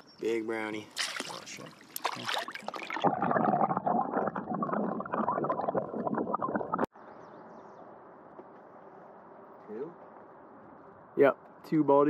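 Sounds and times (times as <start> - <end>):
splash: 0.9 - 3.1
muffled underwater gurgling and bubbles: 2.8 - 6.9.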